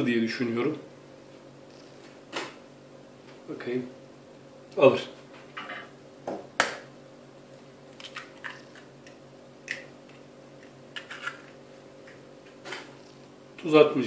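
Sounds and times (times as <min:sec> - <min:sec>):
faint steady hum: 0:00.0 - 0:14.0
egg shell cracking: 0:07.9 - 0:12.2.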